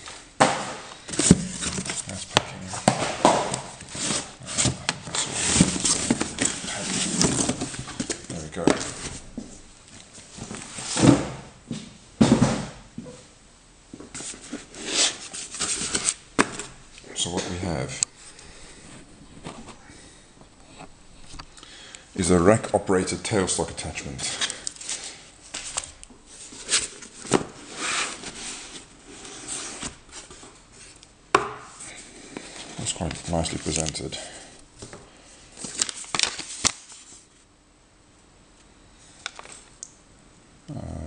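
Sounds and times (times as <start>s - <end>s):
cardboard scraping and rustling: 0.4s - 9.6s, 14.1s - 16.8s, 18.8s - 19.9s, 25.5s - 31.0s
cardboard box rustling: 1.1s - 9.4s.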